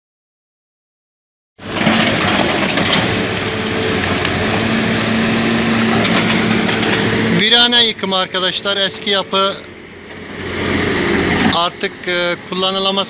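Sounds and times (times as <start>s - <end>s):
crunch and clatter of rubble: 1.6s - 4.8s, 5.9s - 7.1s
excavator engine humming: 1.6s - 13.0s.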